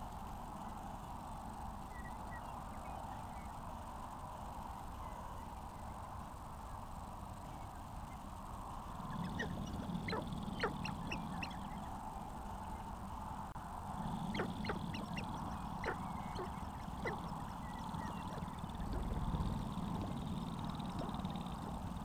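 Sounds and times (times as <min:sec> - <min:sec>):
steady low rumble: 0:08.4 - 0:22.0
grouse clucking and cackling: 0:09.0 - 0:12.0, 0:14.0 - 0:22.0.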